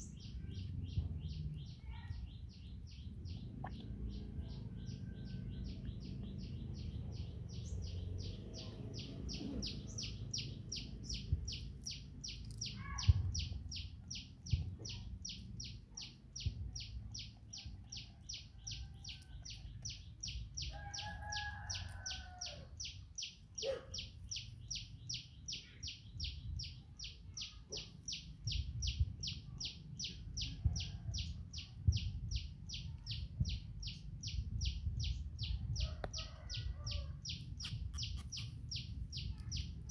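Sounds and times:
low outdoor rumble: 0.0s - 39.9s
high-pitched chirping: 37.3s - 39.9s.

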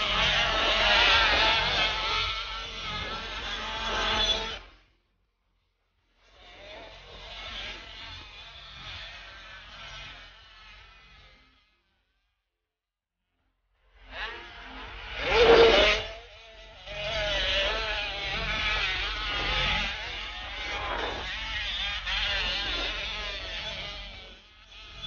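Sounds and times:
motorcycle engines revving: 0.0s - 4.6s, 6.4s - 11.4s, 14.0s - 25.0s
motorcycle passing by: 14.0s - 25.0s.

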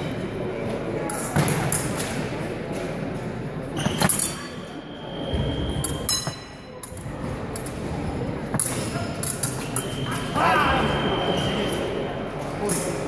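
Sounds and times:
fencing blades clinking: 5.8s - 7.9s, 8.5s - 10.4s.

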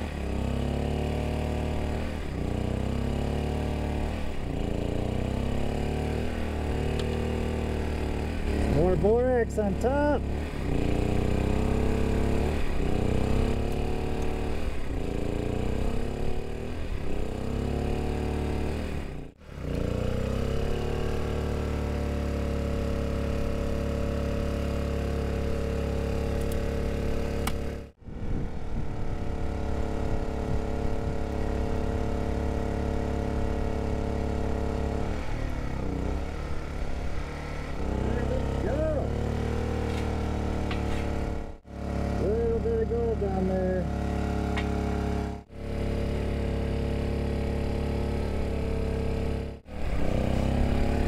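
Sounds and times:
small engine rumbling: 0.0s - 51.0s.

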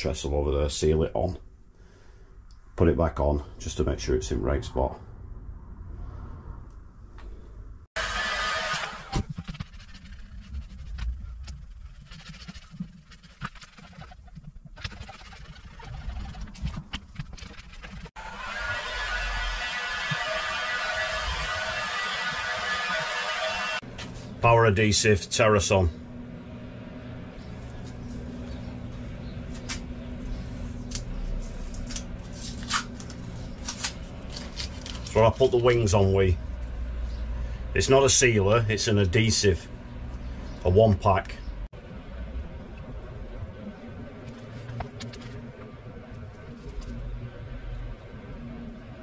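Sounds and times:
steady low hum: 0.0s - 7.9s, 8.7s - 49.0s
low rumble: 3.4s - 7.9s, 41.3s - 49.0s.

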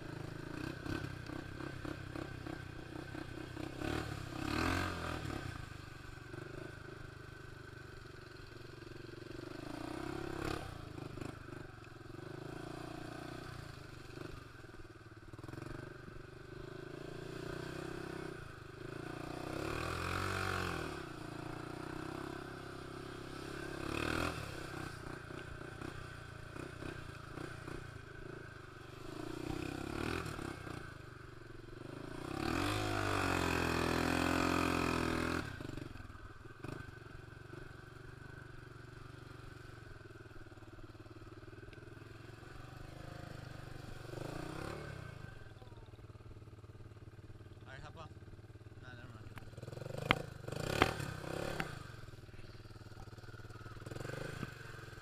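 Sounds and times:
atv engine revving: 0.0s - 55.0s.

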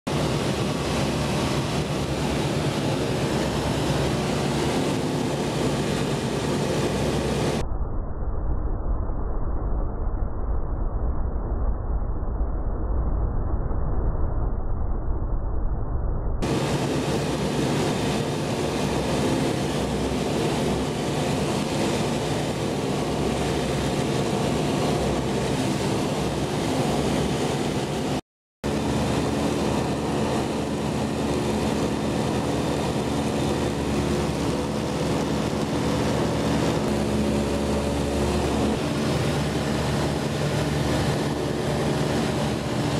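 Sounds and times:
aircraft engine and propeller drone: 0.1s - 7.6s, 16.4s - 42.9s.

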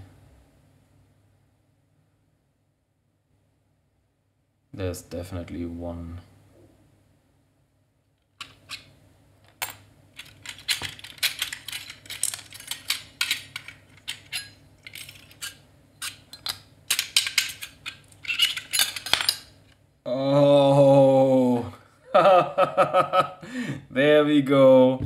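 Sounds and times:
metal platters clinking and scraping: 10.2s - 19.5s.

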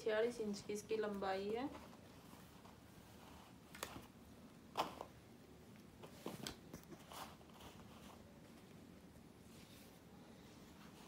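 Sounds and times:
fabric rustling and crinkling: 0.9s - 5.2s.

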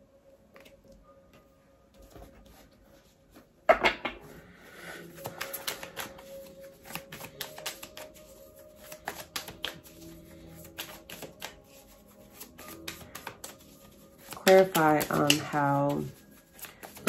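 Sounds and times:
cards shuffling: 5.1s - 17.0s.

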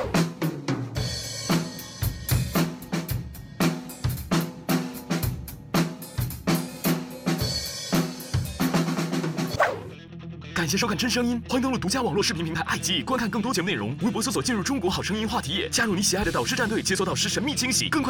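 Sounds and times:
backing music: 0.0s - 9.6s, 10.4s - 18.0s
drum kit beat: 0.0s - 9.6s, 16.2s - 17.6s.

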